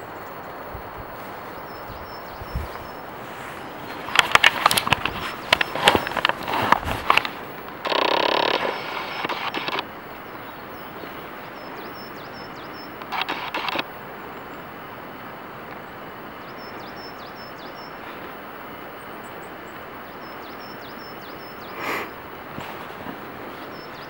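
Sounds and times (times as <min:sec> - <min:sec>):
outdoor background rush: 0:00.0 - 0:24.0
loud scraping rustle: 0:02.6 - 0:09.8
songbird singing high notes: 0:08.3 - 0:13.8.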